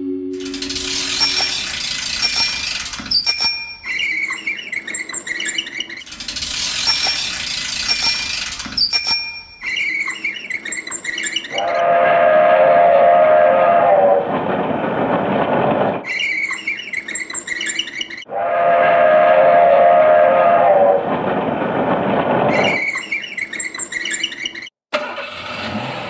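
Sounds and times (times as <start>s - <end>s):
train whistle chord: 0.0s - 1.7s, 11.8s - 14.0s
short repeating jingle: 0.0s - 4.1s.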